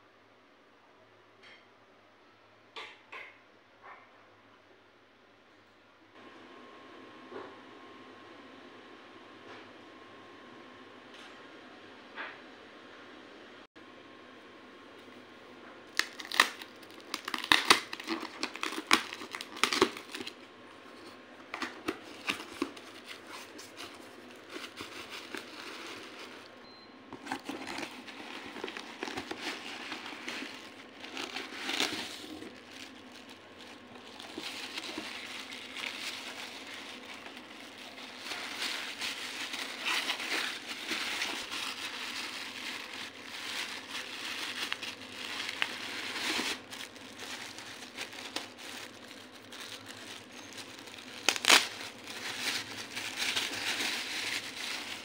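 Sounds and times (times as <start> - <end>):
foam and plastic wrap crinkling: 15.9 - 55.0.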